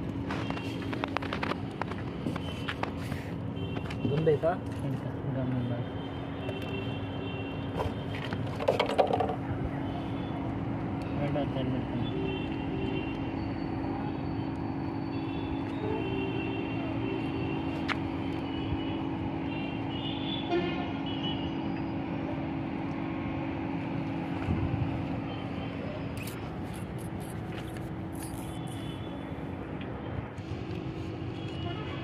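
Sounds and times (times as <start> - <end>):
engine drone: 6.0 - 32.0
car horn toots: 19.6 - 21.4.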